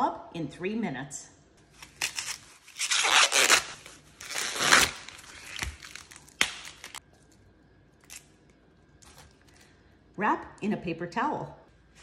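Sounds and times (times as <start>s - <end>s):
corn husks ripping: 1.8s - 7.0s.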